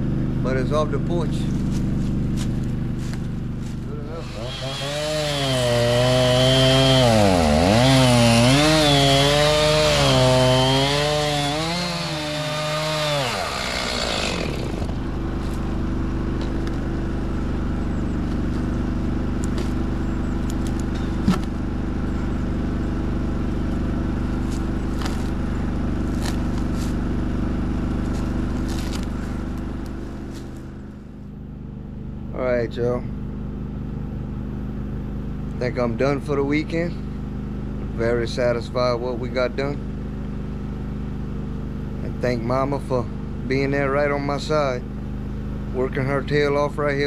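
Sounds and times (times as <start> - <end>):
low engine hum: 0.0 - 47.0
chainsaw cutting wood: 1.8 - 17.0, 19.3 - 21.6, 23.7 - 30.7.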